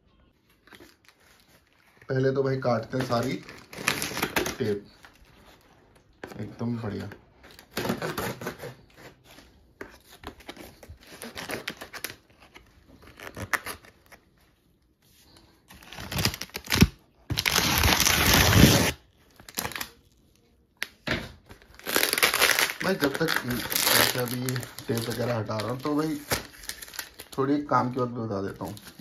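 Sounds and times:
plastic wrap crinkling: 0.4 - 29.0
packing tape ripping: 3.2 - 4.9, 15.8 - 20.0, 21.5 - 27.4.

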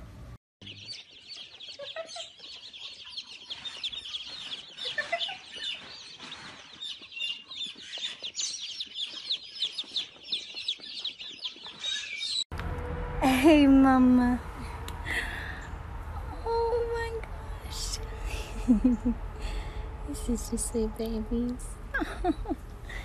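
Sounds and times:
baby chicks peeping: 0.6 - 12.4.

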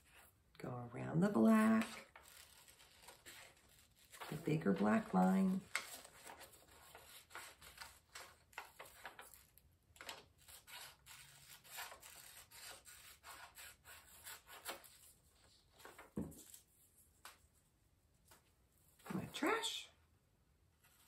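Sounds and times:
paper rustling: 1.4 - 17.6
scissors snipping paper: 1.6 - 4.9, 5.6 - 15.1.

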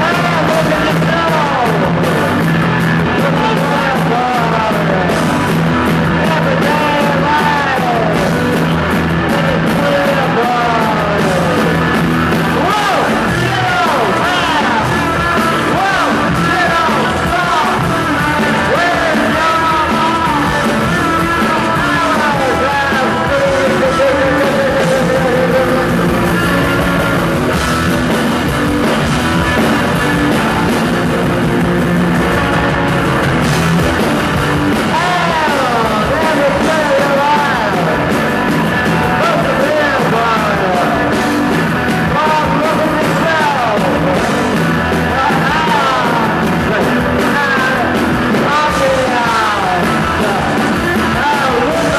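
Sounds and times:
bass guitar: 0.0 - 51.9
drums: 0.0 - 51.9
electric guitar: 0.0 - 51.9
keyboard: 0.0 - 51.9
vocals: 0.0 - 51.9.

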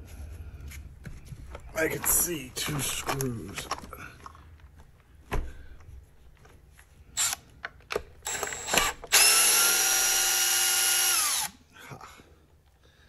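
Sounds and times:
handling clicks and rattles: 1.4 - 5.1
power driver whining: 7.2 - 11.6.

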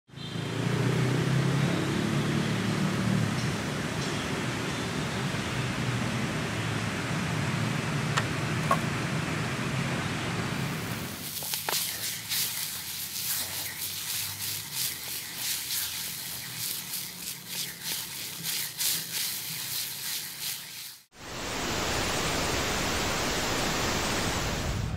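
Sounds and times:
steady rushing noise: 10.3 - 24.9
steak sizzling in pan: 10.9 - 21.1
fat popping and crackling: 11.2 - 15.4.

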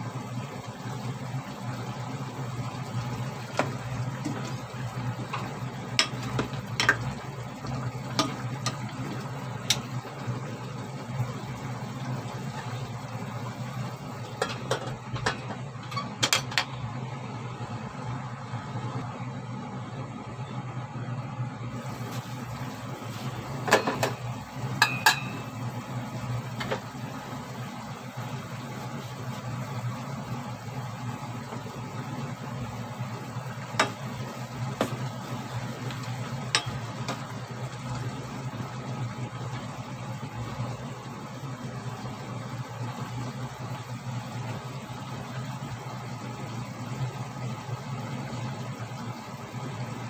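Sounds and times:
food simmering in a pot: 0.0 - 50.0
spoon knocking against pot: 24.8 - 25.4.

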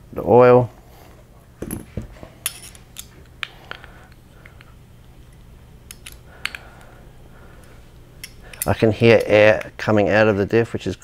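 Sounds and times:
metal parts handling clicks: 1.6 - 6.9, 7.6 - 9.8.

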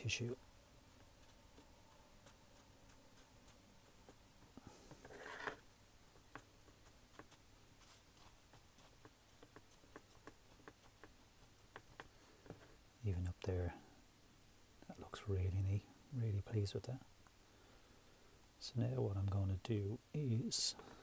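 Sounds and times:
paper tissue rubbing on wood: 5.0 - 5.6.

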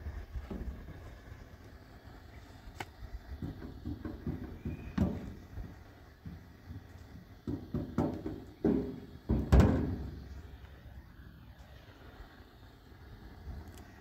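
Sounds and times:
dull thumps and knocks: 3.4 - 10.1.

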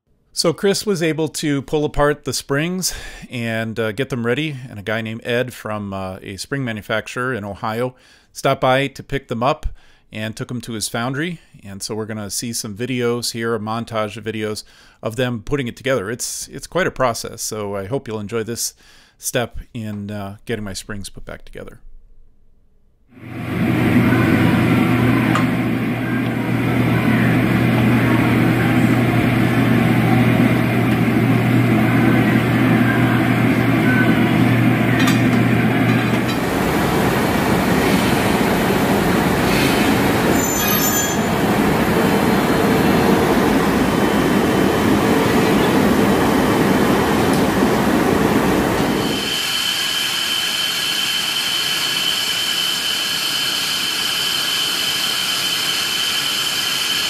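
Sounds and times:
heavy rushing noise: 23.2 - 49.6
factory machine hum: 23.2 - 57.0
steady high whine: 23.2 - 57.0.

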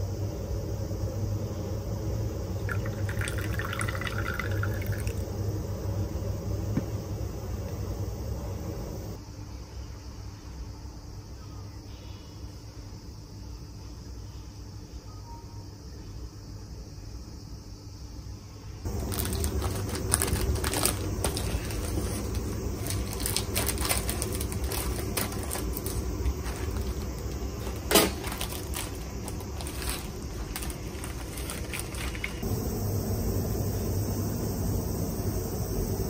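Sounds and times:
plastic wrapper crinkling: 18.9 - 32.4
scissors snipping plastic bag: 18.9 - 32.4.

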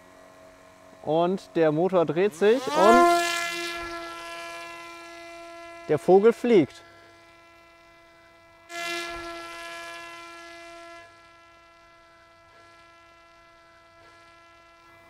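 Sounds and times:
steady electrical hum: 0.0 - 15.0
drone propeller rushing past: 2.0 - 4.3.

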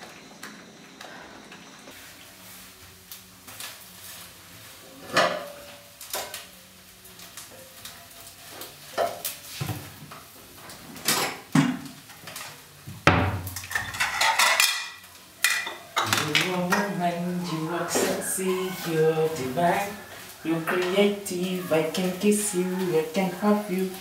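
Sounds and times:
spatula scraping a frying pan: 16.6 - 24.0.

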